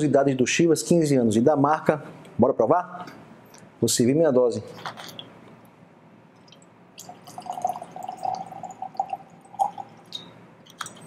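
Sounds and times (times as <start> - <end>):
liquid pouring into glass: 6.4 - 11.0.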